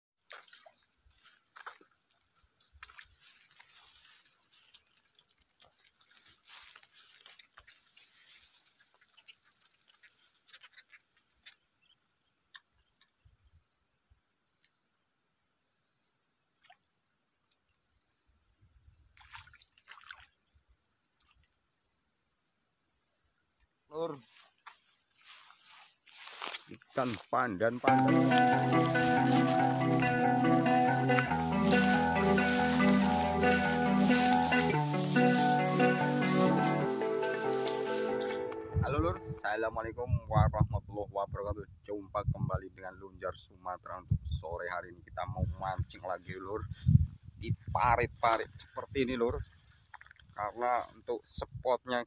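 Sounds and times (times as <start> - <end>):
repeated high insect chirps: 0.2 - 19.2, 27.8 - 40.6
insects shrilling drone: 27.8 - 39.9.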